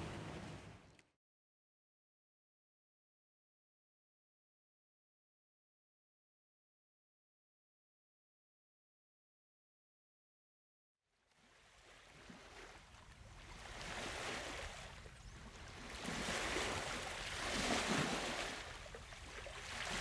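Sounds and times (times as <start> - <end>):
ocean waves washing in: 0.0 - 0.9, 11.4 - 20.0.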